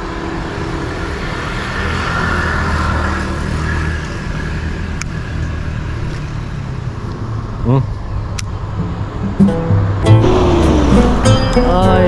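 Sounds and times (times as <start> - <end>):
traffic engine hum: 0.0 - 12.0.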